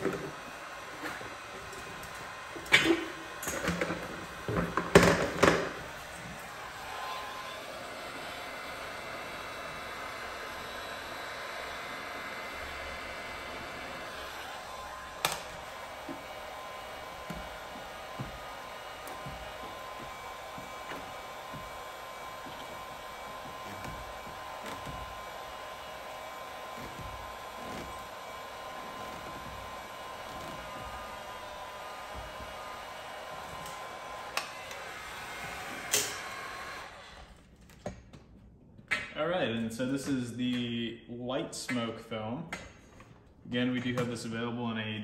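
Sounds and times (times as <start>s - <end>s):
heat gun blowing: 0.0s - 37.5s.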